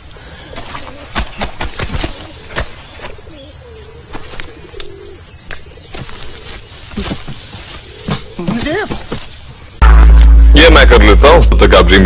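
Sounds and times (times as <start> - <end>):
low wavering tone: 9.8 - 11.6.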